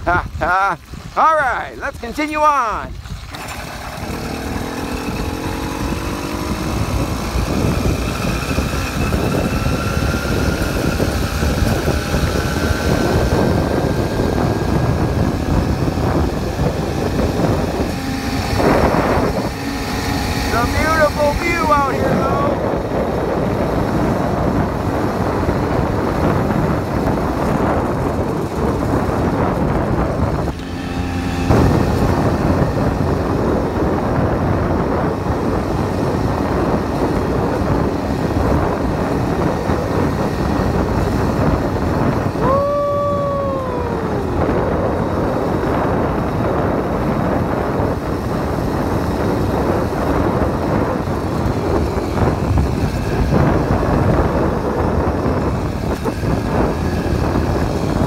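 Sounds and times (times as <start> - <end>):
wind noise on microphone: 0.0 - 58.0
small motorbike engine running: 2.0 - 58.0
high tone gliding downward: 42.4 - 44.5.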